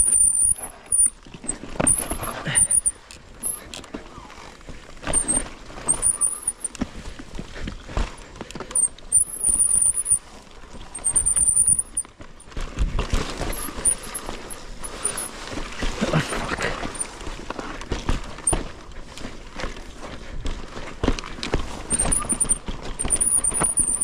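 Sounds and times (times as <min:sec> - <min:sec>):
short high squeals: 0:00.0 - 0:01.2, 0:01.8 - 0:03.6, 0:05.1 - 0:06.8, 0:08.7 - 0:10.3, 0:11.0 - 0:12.1, 0:13.5 - 0:15.3, 0:21.9 - 0:24.0
mountain bike rattling and clattering: 0:00.0 - 0:24.0
tyres rumbling on dirt: 0:12.8 - 0:18.5.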